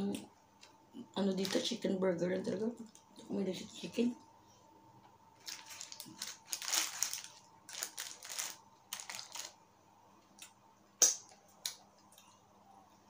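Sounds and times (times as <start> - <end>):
paper wrapper crinkling: 1.3 - 1.8, 5.4 - 9.6.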